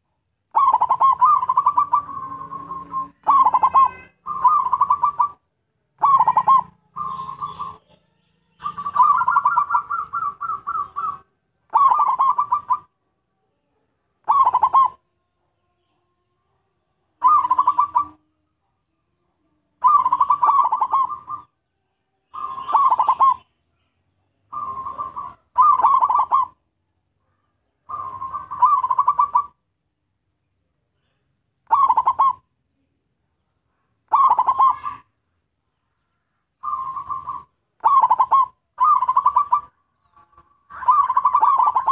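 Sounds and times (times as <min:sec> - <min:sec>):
dove cooing: 0:00.0 - 0:05.4, 0:06.0 - 0:08.0, 0:08.6 - 0:12.9, 0:14.2 - 0:15.0, 0:17.2 - 0:18.2, 0:19.8 - 0:21.6, 0:22.3 - 0:23.5, 0:24.5 - 0:26.6, 0:27.8 - 0:29.6, 0:31.7 - 0:32.5, 0:34.1 - 0:35.1, 0:36.6 - 0:41.9.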